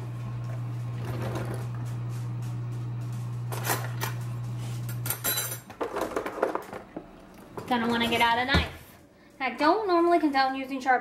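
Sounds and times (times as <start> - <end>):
dishwasher humming: 0.0 - 10.4.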